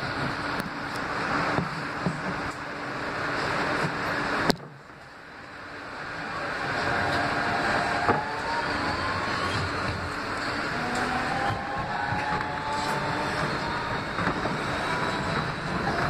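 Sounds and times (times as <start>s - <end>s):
subway wheel and track noise: 0.0s - 16.0s
traction motor whine rising: 5.4s - 16.0s.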